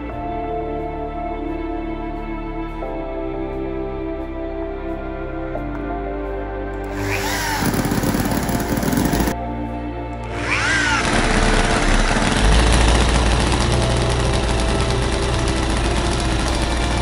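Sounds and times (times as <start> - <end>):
electric drill whine: 6.8 - 9.4, 10.2 - 17.0
small engine running: 6.8 - 9.4, 10.2 - 17.0.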